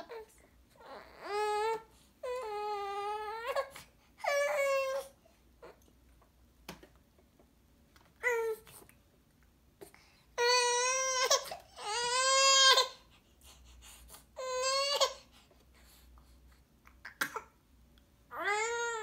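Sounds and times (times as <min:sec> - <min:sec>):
baby fussing with whiny cries: 0:00.0 - 0:05.8, 0:10.4 - 0:13.0, 0:14.4 - 0:15.3, 0:18.3 - 0:19.0.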